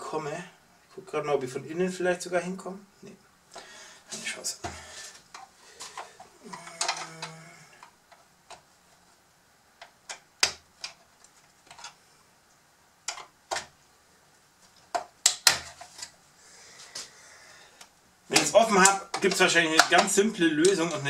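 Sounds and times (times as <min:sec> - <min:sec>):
plastic toy parts clicking: 0:06.0 - 0:07.4.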